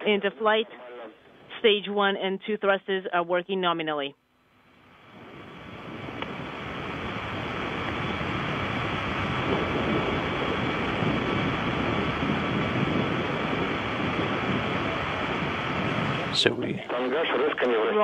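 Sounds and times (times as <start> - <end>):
faint steady tones: 0.0 - 18.0
steady rushing noise: 4.8 - 18.0.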